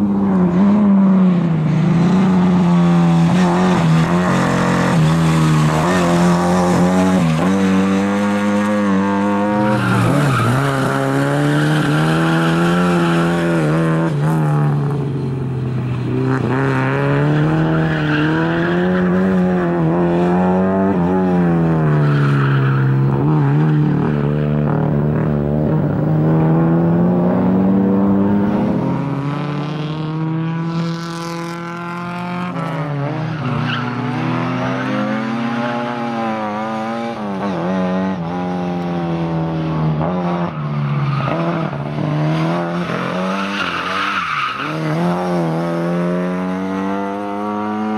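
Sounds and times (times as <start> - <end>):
rally car engine revving: 0.0 - 47.9
tyre squeal: 42.7 - 45.2.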